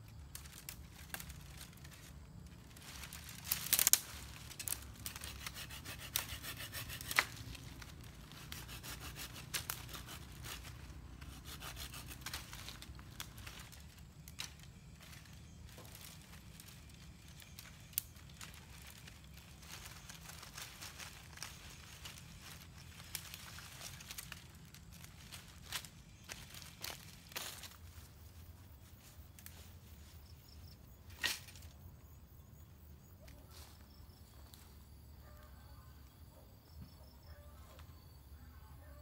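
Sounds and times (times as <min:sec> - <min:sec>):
dry leaves crackling: 0:00.0 - 0:31.9
sharp wood cracks: 0:00.1 - 0:27.8, 0:31.1 - 0:31.7
wood scraping and rubbing: 0:04.2 - 0:13.6
hand saw cutting sticks: 0:04.5 - 0:12.8.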